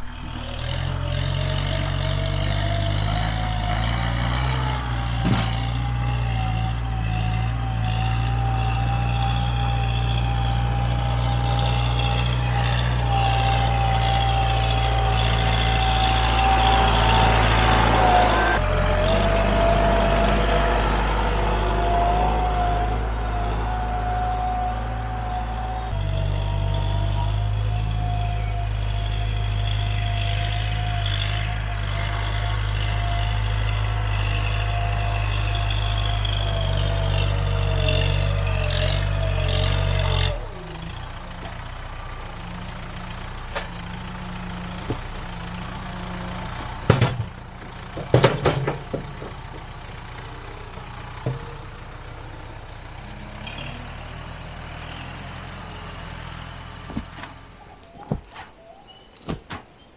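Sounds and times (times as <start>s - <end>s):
tractor engine running: 0.0s - 59.9s
loader bucket knocks and clanks: 5.1s - 5.9s, 46.7s - 50.3s, 51.1s - 51.8s, 56.8s - 59.9s.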